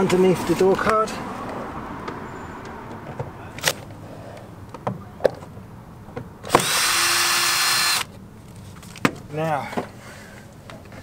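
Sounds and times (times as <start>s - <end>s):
cordless drill motor whining: 6.5s - 8.1s.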